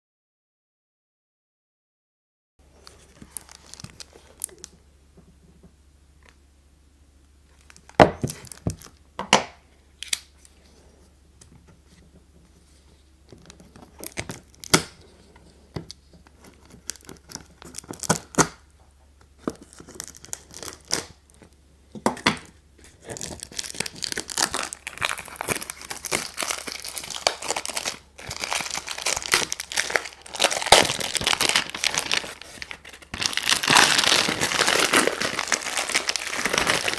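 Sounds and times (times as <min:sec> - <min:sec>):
cellophane crinkling: 0:02.7 - 0:04.8, 0:07.5 - 0:09.0, 0:12.6 - 0:18.7, 0:19.3 - 0:21.6, 0:22.8 - 0:36.9.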